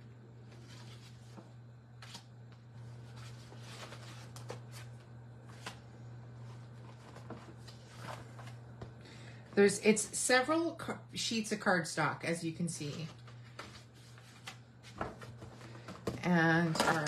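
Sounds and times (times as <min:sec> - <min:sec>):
steady low hum: 0:00.0 - 0:17.0
cardstock rustling and sliding: 0:02.9 - 0:04.9, 0:05.5 - 0:05.8, 0:06.4 - 0:08.6, 0:12.9 - 0:15.9.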